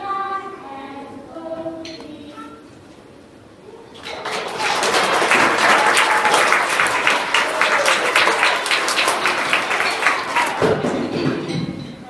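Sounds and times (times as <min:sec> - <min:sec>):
audience applauding: 0:03.9 - 0:10.9.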